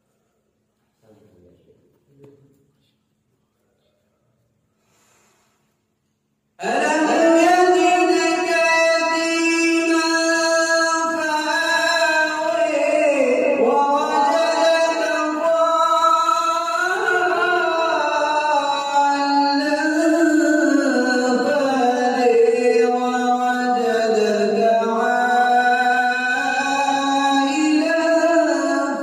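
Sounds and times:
man reciting melodically: 6.6s - 29.0s.

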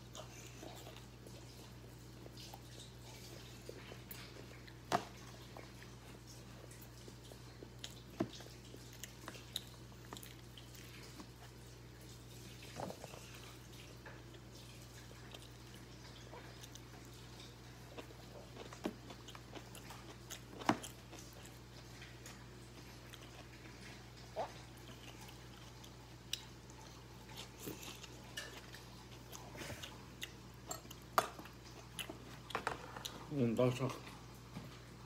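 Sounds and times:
person chewing food: 0.0s - 33.4s.

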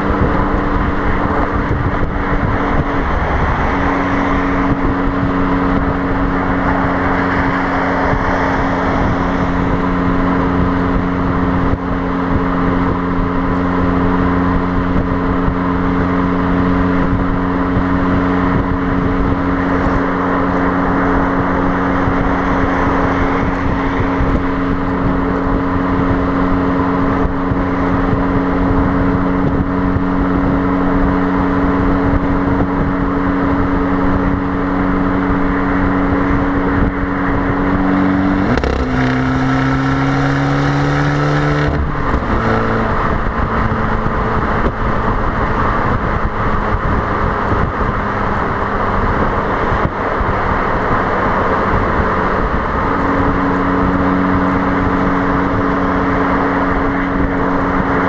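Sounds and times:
car exhaust droning: 0.0s - 58.0s
wind and road noise: 0.0s - 58.0s.

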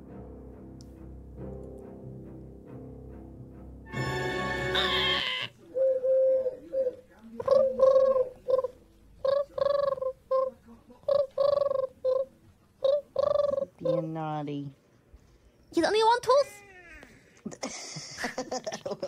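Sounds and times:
dove cooing: 5.7s - 14.2s.

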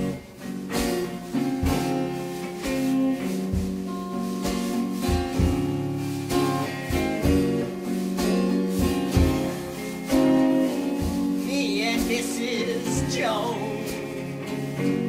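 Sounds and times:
strummed guitar chords: 0.0s - 15.0s
person singing: 11.4s - 15.0s.

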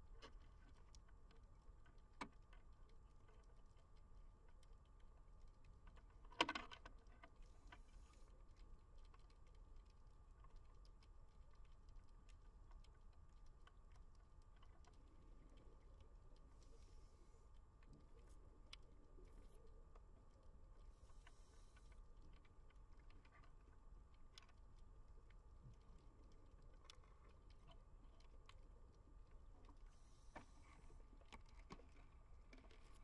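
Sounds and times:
small crackling ticks: 0.0s - 33.0s
low hum: 11.2s - 33.0s.

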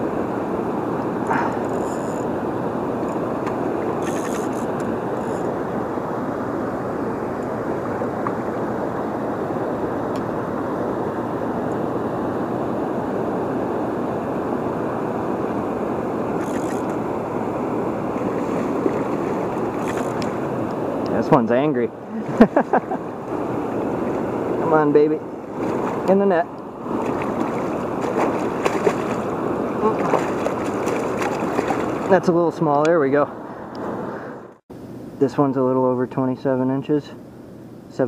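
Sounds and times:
water rushing over dam: 17.0s - 32.4s.

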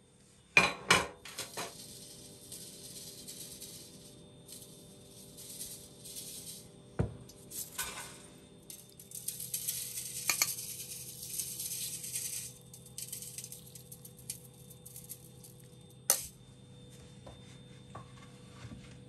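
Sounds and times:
sieve rattling hiss: 1.3s - 15.4s.

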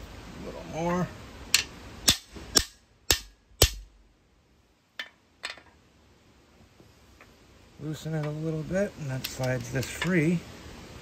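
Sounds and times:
hammer striking metal bar: 1.6s - 3.9s.

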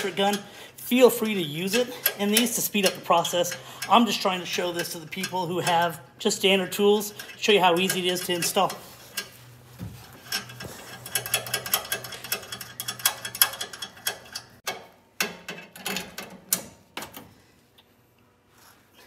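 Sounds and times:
ratchet wrench clicking: 10.3s - 14.6s.

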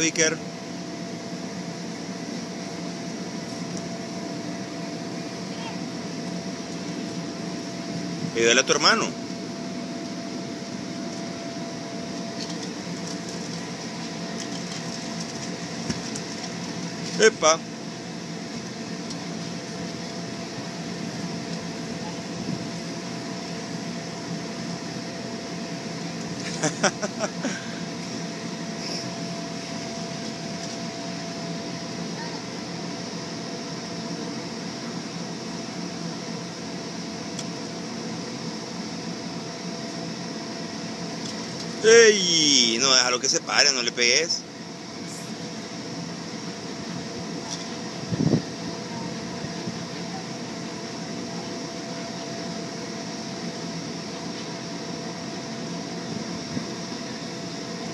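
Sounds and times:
air blower whirring: 0.0s - 57.9s.

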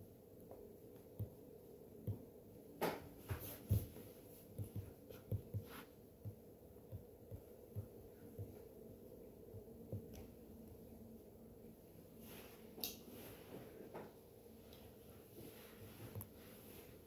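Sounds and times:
stylus tapping on a screen: 1.0s - 1.4s, 4.6s - 8.6s, 9.6s - 10.3s.

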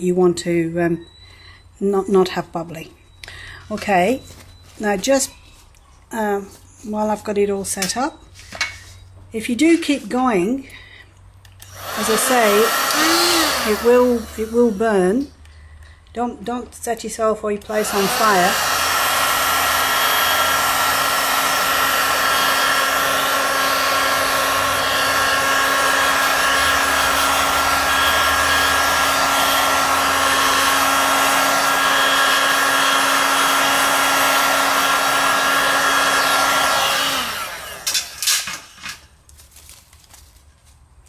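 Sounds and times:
heat gun blowing with fan hum: 9.8s - 39.1s
fan winding down: 11.6s - 15.3s, 17.6s - 39.0s
knocks and handling rustles: 38.0s - 41.0s.

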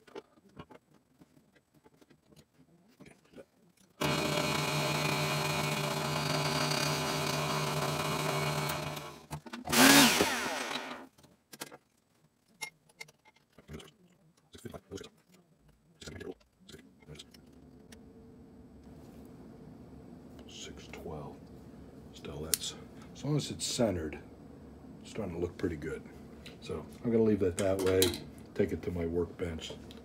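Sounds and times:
spindle winding down: 4.0s - 11.0s
drill press cutting metal: 4.0s - 11.1s.

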